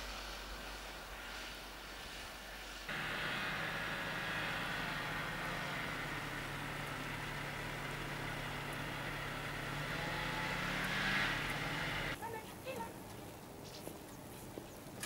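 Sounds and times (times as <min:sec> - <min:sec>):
hiss: 0:00.0 - 0:09.7
snowmobile engine idling: 0:02.1 - 0:12.2.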